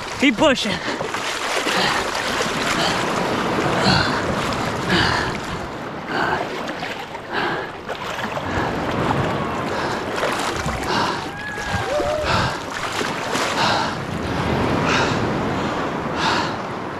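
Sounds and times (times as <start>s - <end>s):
small waves washing: 0.0s - 16.9s
wading splashes in shallow water: 0.0s - 16.9s
wind on microphone: 8.2s - 16.9s.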